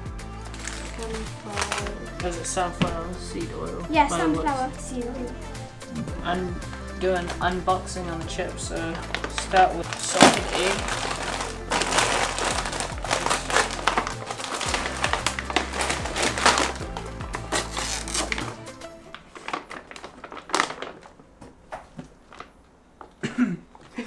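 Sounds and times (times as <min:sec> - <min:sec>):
background music with bass line: 0:00.0 - 0:19.1
plastic bag crinkling: 0:00.4 - 0:02.0, 0:08.9 - 0:22.7.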